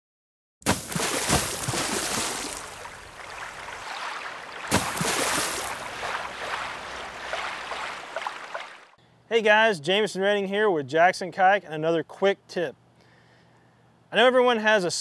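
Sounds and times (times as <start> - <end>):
rushing water-like whoosh: 0.7 - 8.9.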